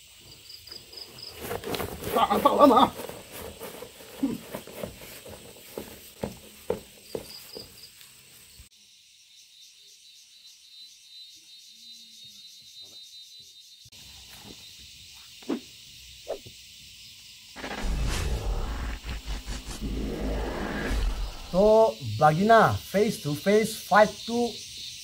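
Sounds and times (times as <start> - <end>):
crickets chirring: 0.0 - 25.0
soft footsteps on grass: 0.7 - 8.7.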